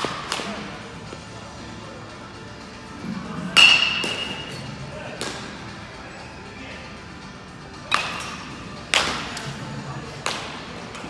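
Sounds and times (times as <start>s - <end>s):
baseball bat hitting ball: 0.0s - 0.8s, 3.6s - 4.5s, 5.2s - 5.5s, 7.9s - 9.5s, 10.2s - 10.8s.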